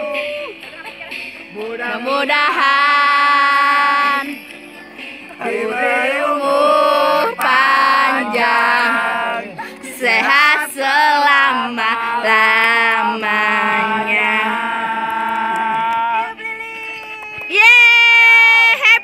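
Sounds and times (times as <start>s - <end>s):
person singing slowly: 5.4s - 16.3s.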